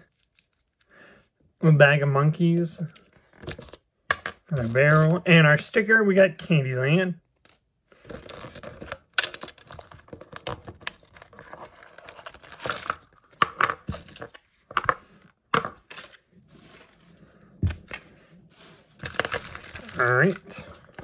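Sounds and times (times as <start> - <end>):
plastic bags crinkling and tearing: 7.5 - 15.0, 17.6 - 21.0.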